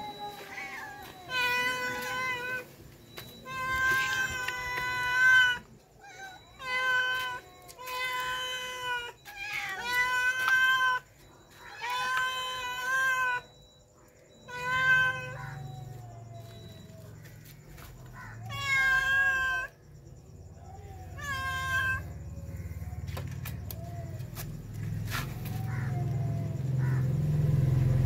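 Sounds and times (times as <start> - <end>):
cats meowing: 0.0 - 13.6, 14.3 - 19.8, 20.5 - 22.8.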